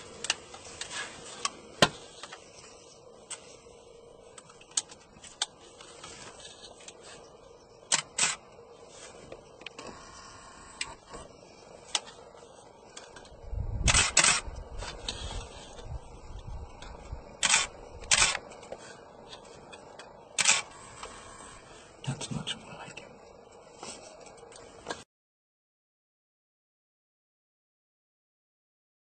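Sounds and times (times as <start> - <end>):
low rumble: 12.2 - 18.2.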